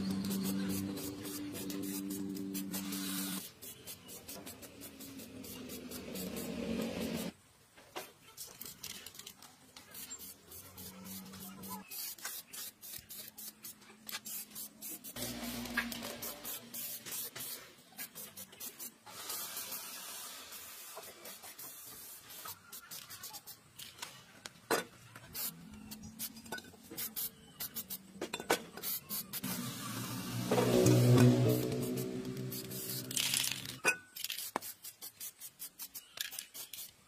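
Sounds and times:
spray paint can hissing: 0.0s - 7.3s, 8.4s - 24.0s, 25.4s - 28.0s, 28.7s - 37.0s.

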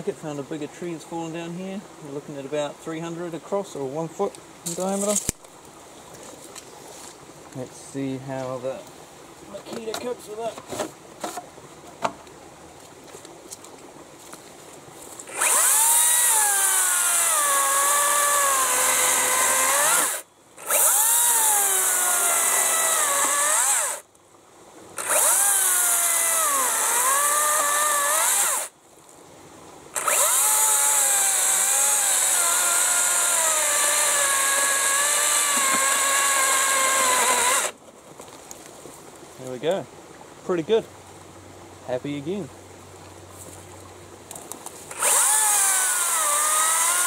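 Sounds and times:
electric chainsaw cutting log: 15.2s - 24.0s, 25.0s - 28.7s, 30.0s - 37.8s, 44.9s - 47.0s.

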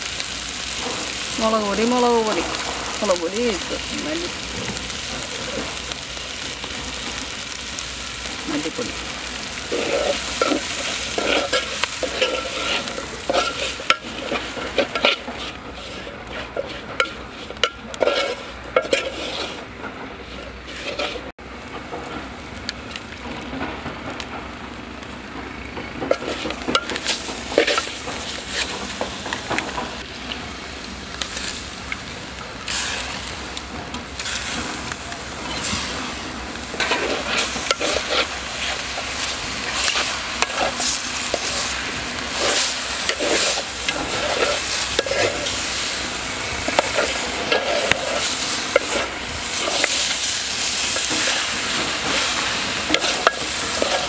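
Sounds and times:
metal spoon scraping a steel pot: 9.7s - 19.6s, 20.2s - 21.3s.

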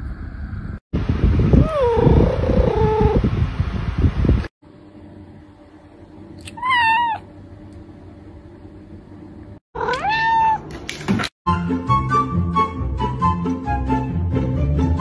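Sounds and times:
cat meowing: 6.4s - 7.2s, 9.8s - 10.6s.

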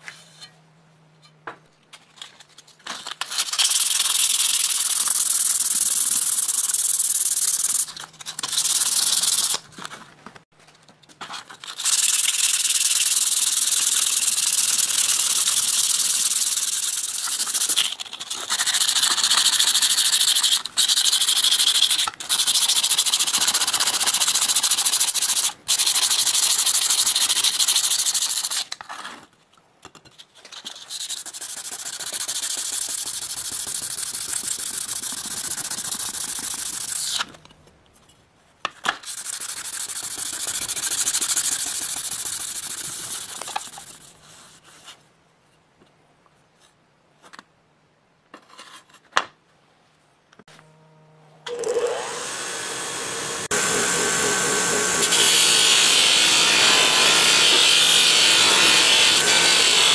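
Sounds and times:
blade being sanded: 3.4s - 9.6s, 11.6s - 28.6s, 30.8s - 37.2s, 39.0s - 44.0s, 52.0s - 59.9s.

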